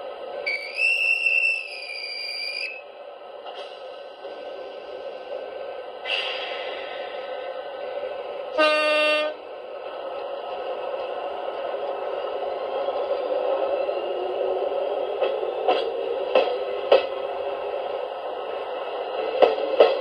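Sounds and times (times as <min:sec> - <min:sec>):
train horn: 0:08.5 - 0:09.4.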